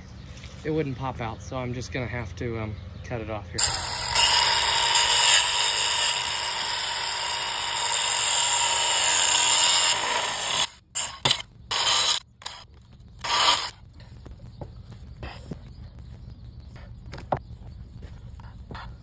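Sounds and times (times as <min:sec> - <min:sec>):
angle grinder cutting metal: 0:03.6 - 0:13.8.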